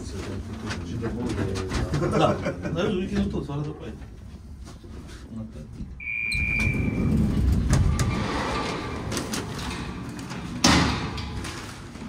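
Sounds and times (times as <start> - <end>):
sliding door rumbling on track: 6.4 - 12.0.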